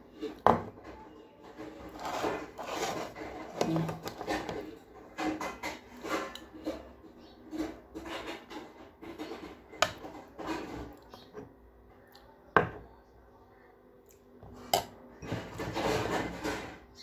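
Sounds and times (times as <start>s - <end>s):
spoon scraping ceramic plate: 1.5s - 11.5s, 14.5s - 17.0s.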